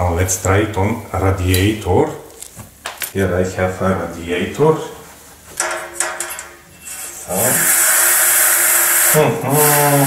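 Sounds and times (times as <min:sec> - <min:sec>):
brush scrubbing radiator: 0:06.9 - 0:10.0.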